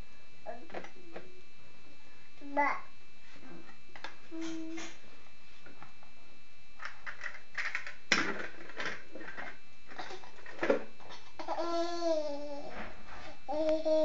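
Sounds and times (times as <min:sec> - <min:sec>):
baby babbling: 0:11.1 - 0:12.7.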